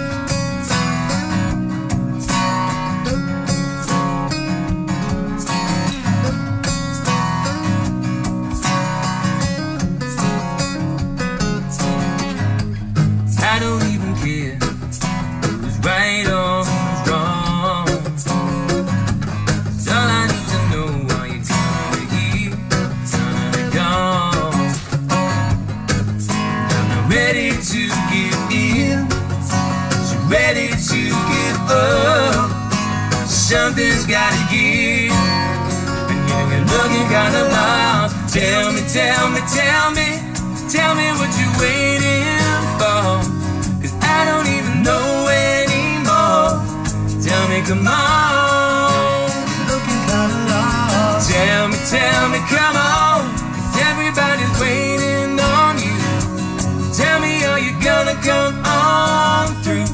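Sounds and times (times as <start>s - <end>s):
acoustic guitars strummed: 0.0s - 59.9s
man singing: 13.3s - 18.5s, 19.7s - 25.0s, 26.7s - 59.9s.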